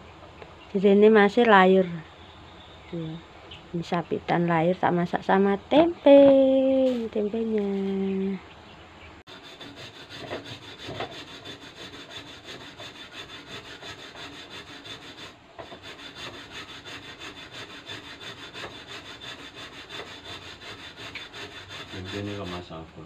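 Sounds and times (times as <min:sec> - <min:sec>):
rhythmic scraping: 0:03.9 - 0:08.2, 0:09.3 - 0:23.0.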